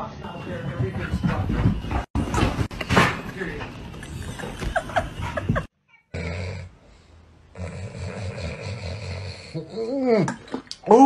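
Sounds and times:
dog snoring: 0:07.5 - 0:09.8.

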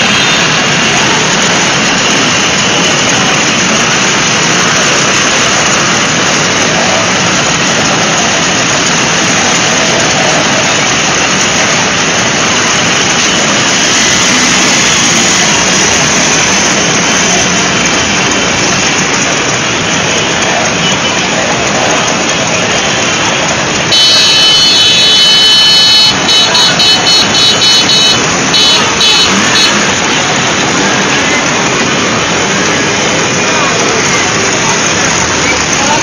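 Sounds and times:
motor scooters riding past: 0:00.0 - 0:25.3.

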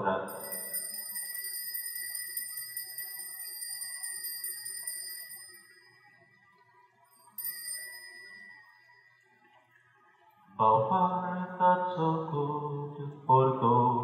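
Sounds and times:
altar bell ringing: 0:00.3 - 0:09.2.

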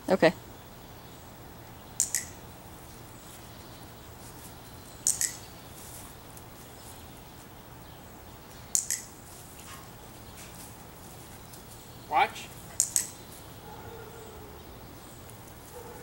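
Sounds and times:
sharp double clicks: 0:01.9 - 0:02.4, 0:05.0 - 0:05.5, 0:08.7 - 0:09.2, 0:12.7 - 0:13.3.

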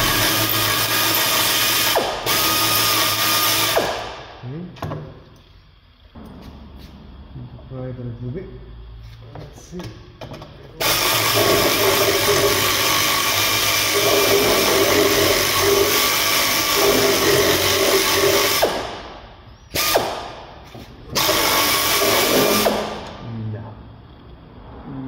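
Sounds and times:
pneumatic air ratchet whirring: 0:00.0 - 0:04.2, 0:10.8 - 0:23.2.

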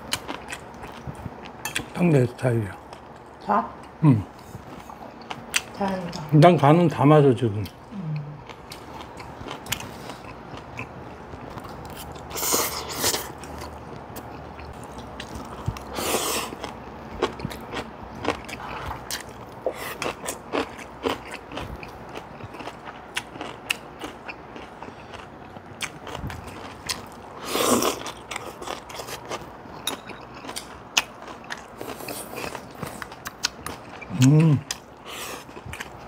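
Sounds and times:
people chewing and crunching food: 0:00.0 - 0:06.7, 0:07.4 - 0:36.0.

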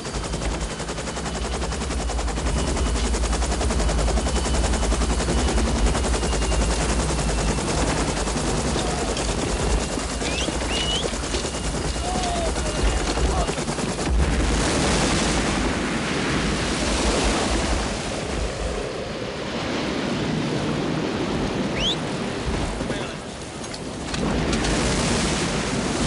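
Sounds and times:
helicopter rotor thudding: 0:00.0 - 0:15.0.

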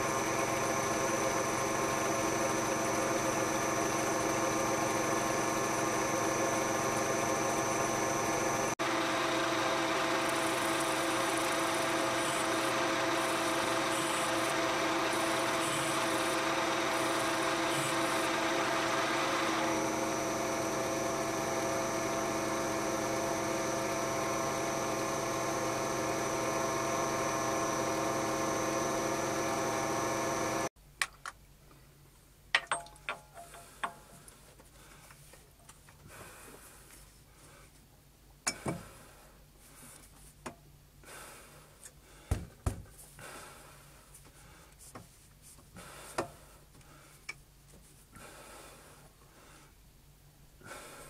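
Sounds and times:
lathe gear whine: 0:00.0 - 0:30.7
hissing metal cut: 0:09.0 - 0:20.4.

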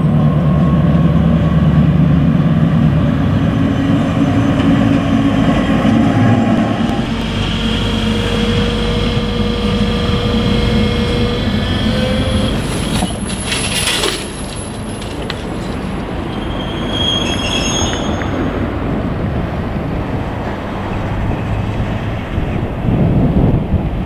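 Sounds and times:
diesel engine rumbling: 0:00.0 - 0:24.0
wheel flanges squealing: 0:05.9 - 0:18.7.

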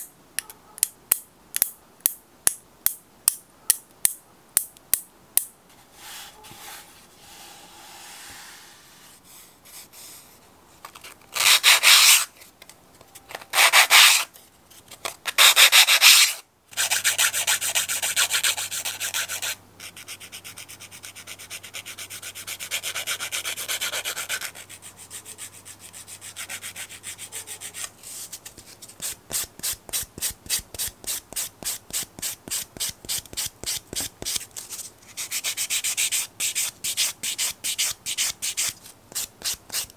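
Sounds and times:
nail file rasping on fingernails: 0:35.2 - 0:39.9.

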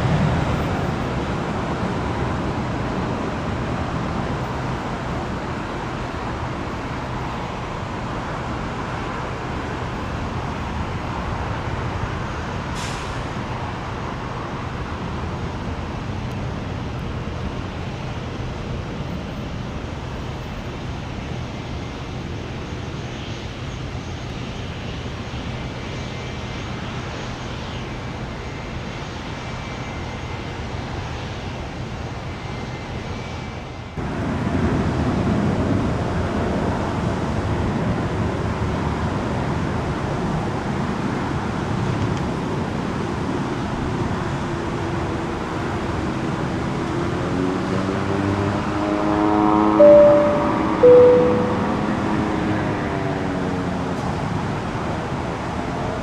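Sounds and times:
faint high whine: 0:49.8 - 0:52.3.

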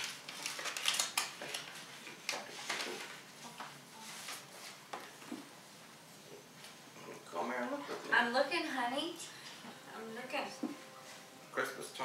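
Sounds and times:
paper rustling and crinkling: 0:00.0 - 0:04.8.

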